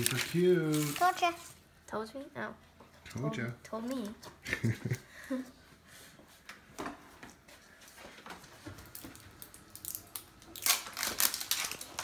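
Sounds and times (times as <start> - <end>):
toy wrapping rustling: 0.0 - 1.6, 10.6 - 12.0
wrapping crinkling: 0.0 - 1.6, 8.8 - 12.0.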